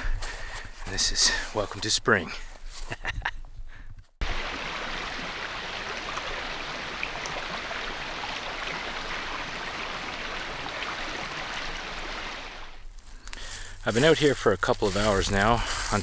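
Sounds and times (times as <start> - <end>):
river water rushing: 4.2 - 12.8.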